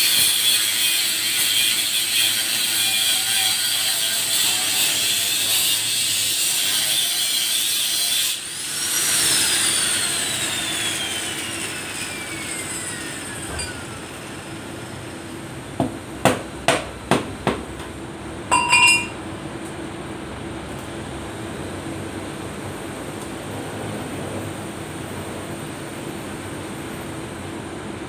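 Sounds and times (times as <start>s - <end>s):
angle grinder grinding metal: 0.0s - 14.4s.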